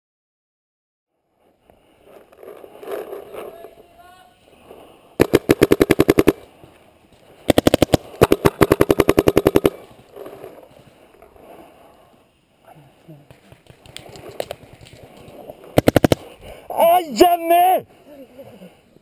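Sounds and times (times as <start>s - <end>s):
paintball marker firing rapid shots: 5.2s - 6.5s, 7.4s - 9.9s, 15.7s - 16.4s.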